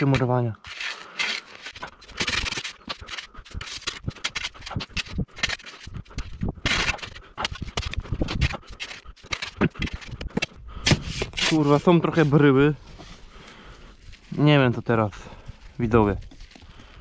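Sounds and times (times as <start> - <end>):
shovel scraping frozen sand: 0.0 - 13.2.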